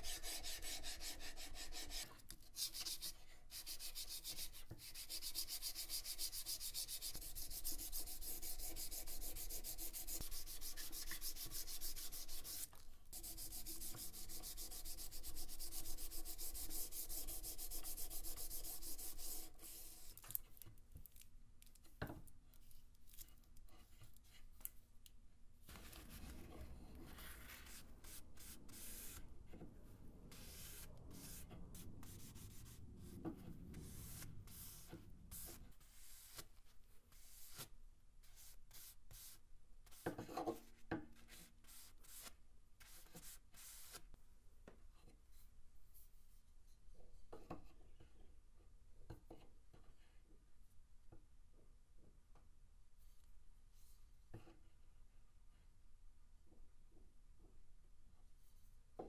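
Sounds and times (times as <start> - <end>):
sandpaper rubbing on wood: 2.6 - 20.0
paper towel rubbing wood: 25.7 - 29.2.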